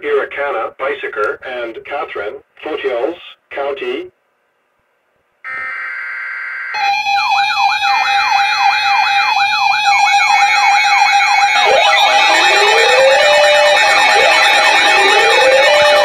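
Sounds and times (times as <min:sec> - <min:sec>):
buzzy alarm tone: 0:05.5 - 0:16.0
electronic sirens sweeping: 0:05.5 - 0:16.0
steady alarm tone: 0:05.5 - 0:16.0.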